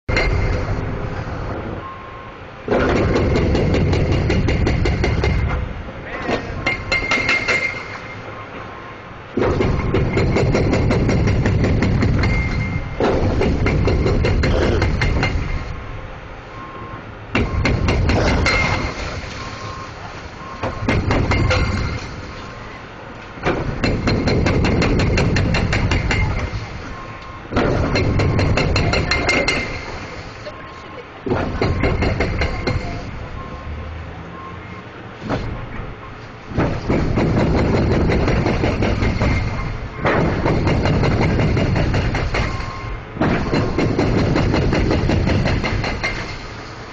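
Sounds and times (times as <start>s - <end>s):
demolition machine knocking and crunching: 0.0s - 1.0s, 2.6s - 8.7s, 9.3s - 16.0s, 17.3s - 30.3s, 31.2s - 33.5s, 35.2s - 46.9s
heavy engine rumble: 0.0s - 46.9s
hydraulic breaker hammering concrete: 2.7s - 5.6s, 9.4s - 15.8s, 17.3s - 19.3s, 20.6s - 22.4s, 23.4s - 26.8s, 27.5s - 30.2s, 31.3s - 33.1s, 36.5s - 46.6s.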